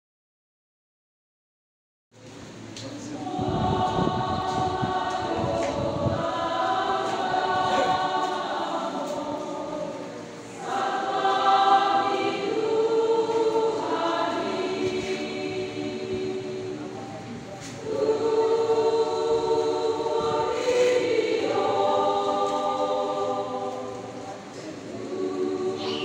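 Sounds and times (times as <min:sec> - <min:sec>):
choir singing: 0:02.9 - 0:26.0.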